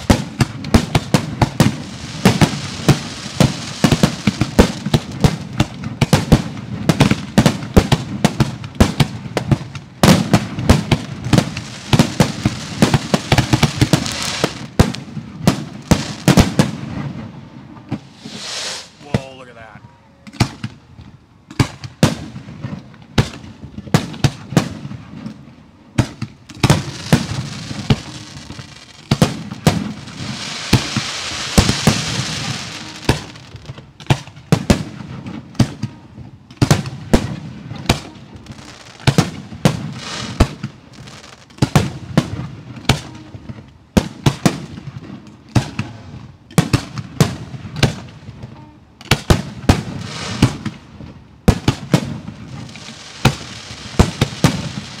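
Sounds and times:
dense hiss: 0.0 - 5.3, 10.5 - 19.8, 26.4 - 33.9, 38.0 - 41.6, 50.0 - 50.8, 52.3 - 55.0
fireworks bursting: 0.0 - 55.0.

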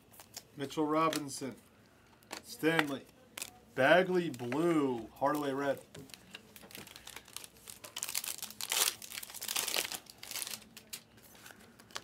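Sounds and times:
plastic wrapper crinkling and tearing: 2.8 - 3.6, 4.3 - 12.0.

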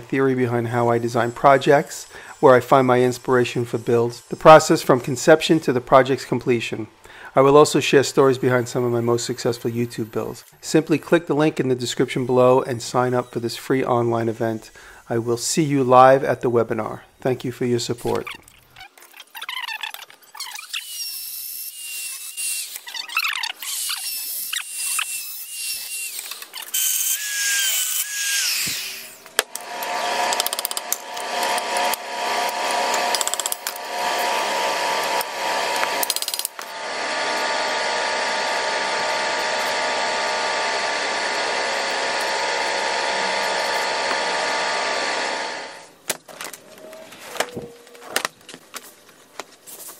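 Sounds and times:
power tools squealing on steel: 0.2 - 6.2, 8.2 - 11.1, 11.9 - 15.0, 18.1 - 45.8
motor running steadily: 28.7 - 45.9.

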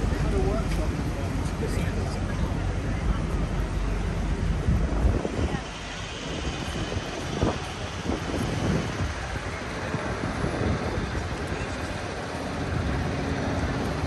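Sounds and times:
traffic noise: 0.0 - 14.0
wind on microphone: 2.2 - 14.0.

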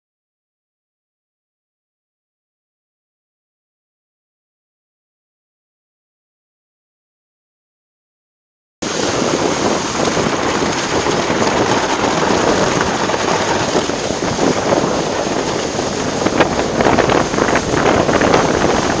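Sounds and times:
wind buffeting microphone: 8.8 - 19.0.

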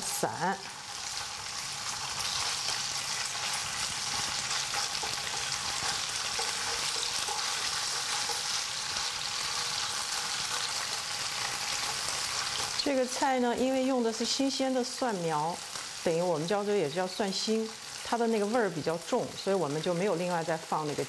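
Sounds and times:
meat sizzling in hot oil: 0.0 - 21.0
chopsticks stirring in a wok: 2.2 - 12.7.

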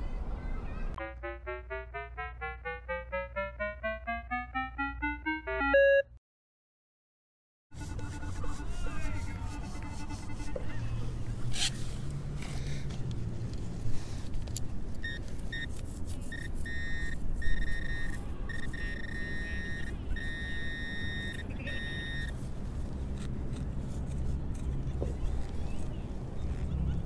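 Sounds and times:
electronic beeps and warbling tones: 1.0 - 6.1.

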